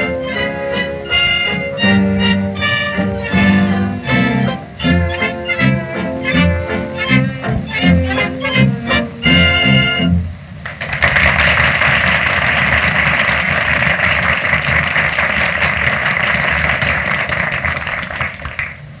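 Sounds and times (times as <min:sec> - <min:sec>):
audience applause: 0:10.6 - 0:18.8.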